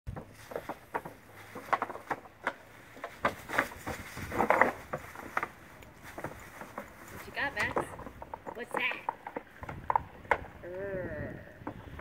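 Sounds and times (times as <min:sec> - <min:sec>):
dry leaves rustling and crackling: 0:00.2 - 0:09.6.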